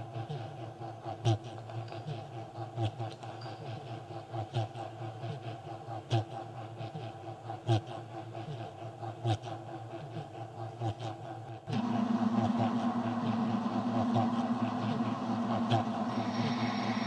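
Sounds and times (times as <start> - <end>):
electronic tones from spinning speakers: 11.8 - 17.0
steady low tone: 11.8 - 17.0.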